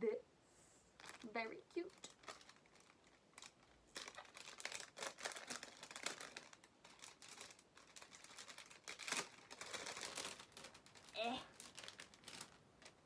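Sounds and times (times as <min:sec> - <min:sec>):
plastic packaging crinkling: 0:01.0 - 0:13.0.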